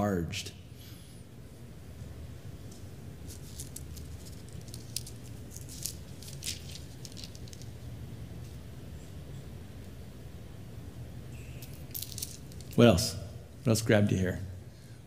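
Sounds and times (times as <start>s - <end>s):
low room hum: 0.0s - 15.0s
book pages rustling: 2.7s - 7.7s.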